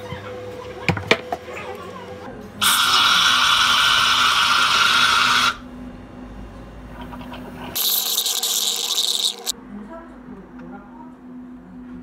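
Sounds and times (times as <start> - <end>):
whipped cream dispenser hissing: 2.6 - 5.6, 7.8 - 9.5.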